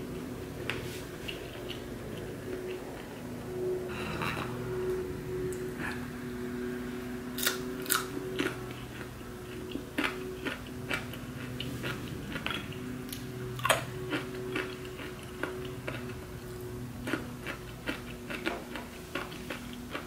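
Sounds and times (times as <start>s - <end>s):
low hum: 0.0s - 20.0s
person crunching crispy bacon: 7.4s - 16.2s.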